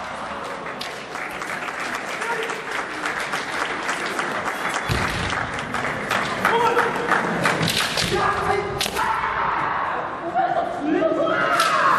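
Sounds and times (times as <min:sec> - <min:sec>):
spectators applauding: 0:00.3 - 0:08.0.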